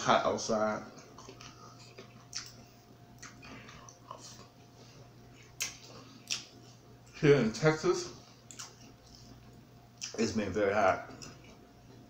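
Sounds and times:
quiet chewing: 0.9 - 7.2, 8.3 - 10.2, 11.0 - 12.0
sharp mouth clicks: 5.6 - 6.5.

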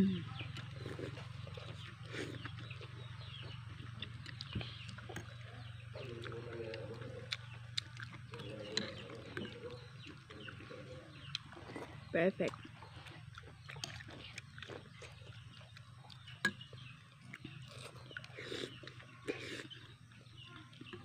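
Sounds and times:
faint bird chirps: 0.0 - 21.0.

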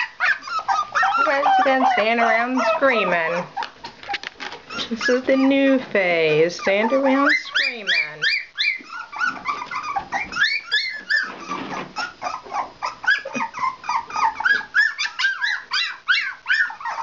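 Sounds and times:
puppies yelping and whining: 0.0 - 17.0.

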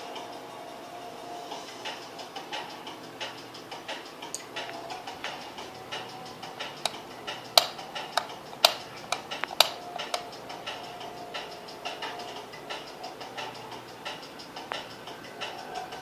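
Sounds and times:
faint regular ticking: 1.7 - 16.0
light switch clicks: 7.6 - 10.2.

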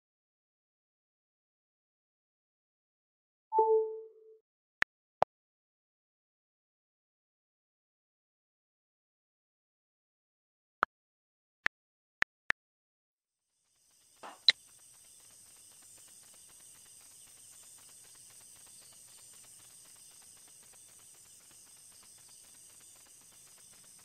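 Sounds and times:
sharp click: 14.2 - 14.5.

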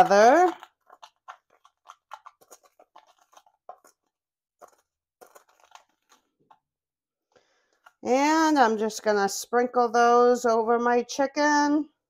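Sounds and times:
spices mixed in glass bowl: 0.0 - 6.6.

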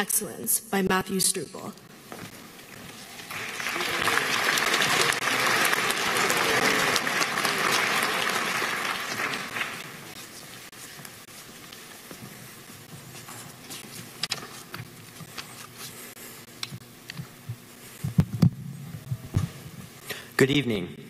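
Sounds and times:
audience applause: 3.2 - 10.2.

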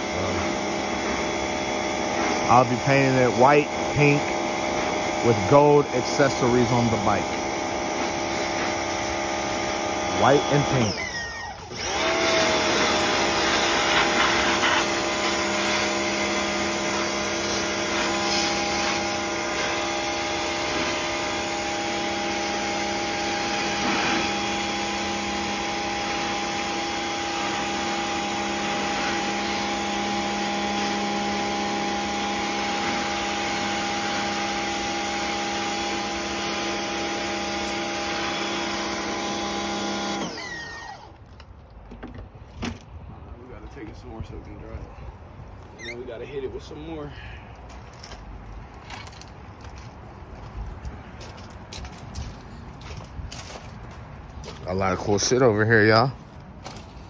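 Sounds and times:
water jet hissing: 0.0 - 41.1
pressure washer motor humming: 0.0 - 41.4.

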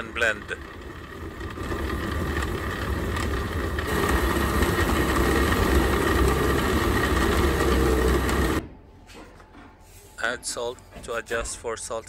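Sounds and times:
blender motor running: 0.0 - 8.6.

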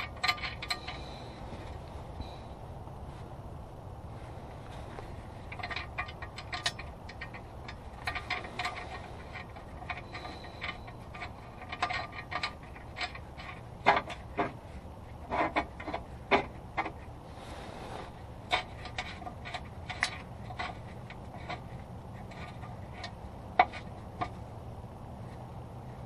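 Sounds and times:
metallic clicks of bolts handled: 0.0 - 1.1, 5.4 - 14.4.

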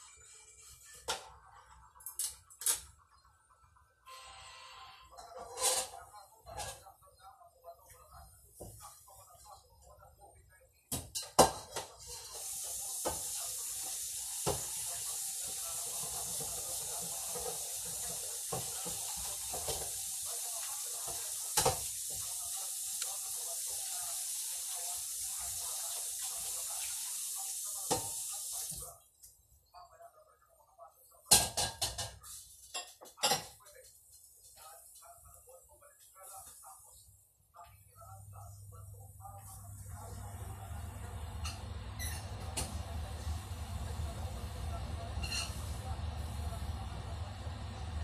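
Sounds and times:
kitchen tap running: 12.2 - 28.8, 40.0 - 46.6.

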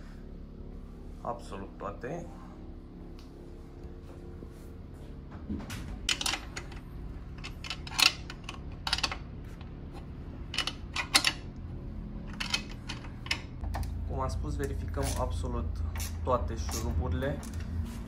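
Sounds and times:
low steady hum: 0.0 - 18.0
wrench clicking on metal bolts: 7.4 - 9.2, 12.3 - 13.8.

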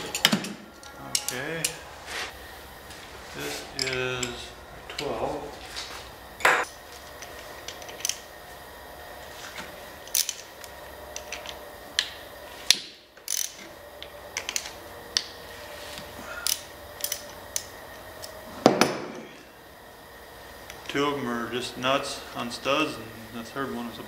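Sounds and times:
socket ratchet clicking: 13.3 - 13.6.

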